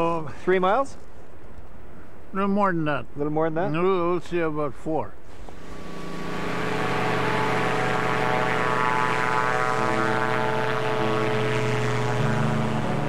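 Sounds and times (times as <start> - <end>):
propeller engine droning: 5.3 - 13.0.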